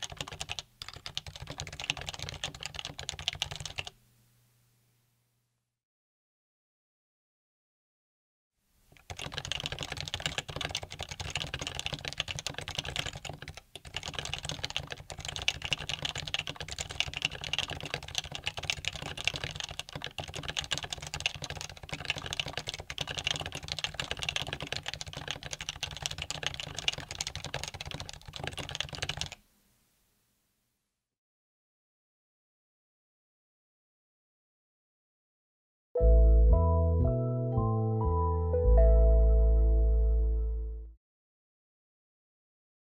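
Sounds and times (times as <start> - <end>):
fast typing on keyboard: 0.0 - 3.9, 9.0 - 29.4.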